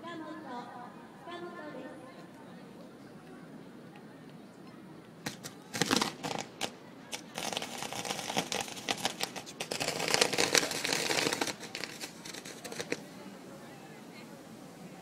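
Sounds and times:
fireworks crackling: 5.2s - 14.9s.

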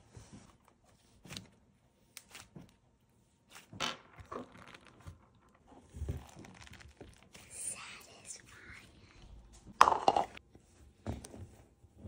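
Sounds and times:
slime squishing and crackling: 3.5s - 7.6s.

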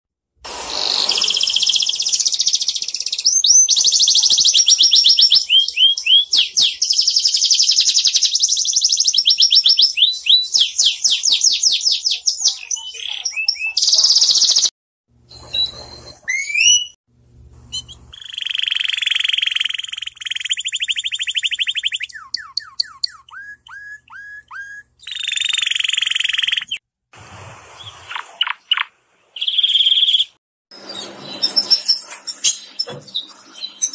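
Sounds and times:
canary singing: 0.8s - 14.7s, 15.3s - 17.0s, 17.7s - 26.8s, 28.1s - 30.4s.

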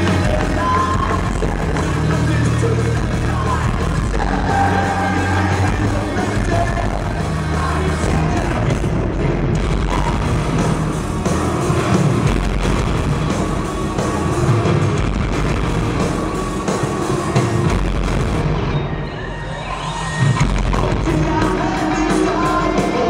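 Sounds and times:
rock band playing live: 0.0s - 23.0s.

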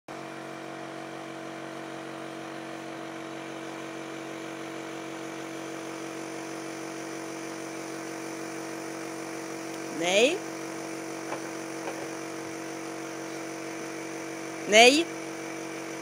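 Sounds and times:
machine humming: 5.1s - 16.0s.

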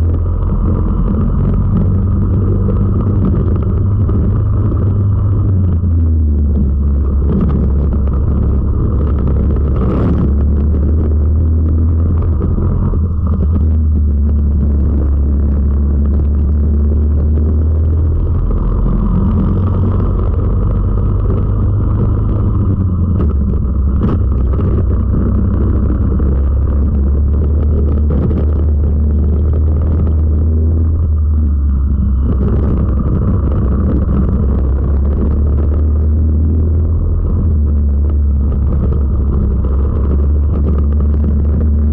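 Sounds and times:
road and wind noise: 0.0s - 41.9s.

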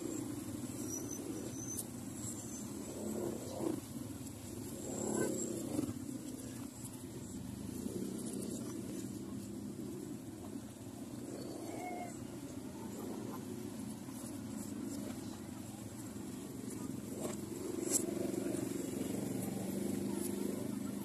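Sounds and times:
motorcycle engine rumble: 0.0s - 21.0s
vehicles passing: 0.0s - 21.0s.

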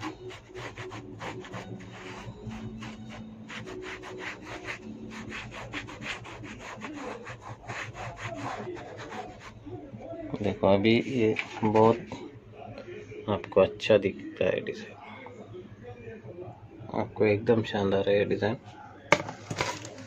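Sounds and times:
scratchy paint strokes on plaster: 0.0s - 12.1s.

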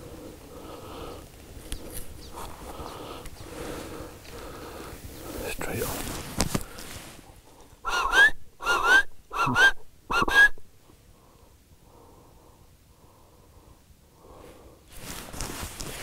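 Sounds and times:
zebra barking calls: 7.8s - 10.7s.

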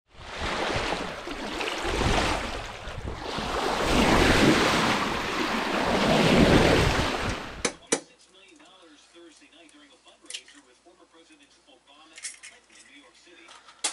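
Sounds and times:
water splashing along boat hull: 0.2s - 7.7s
wind buffeting microphone: 1.8s - 7.6s.

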